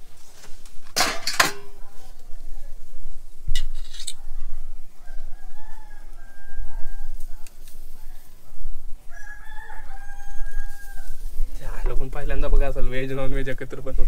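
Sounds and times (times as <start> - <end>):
fork clattering in steel bowl: 1.0 - 1.8
rooster crowing: 4.8 - 7.2, 9.0 - 11.3.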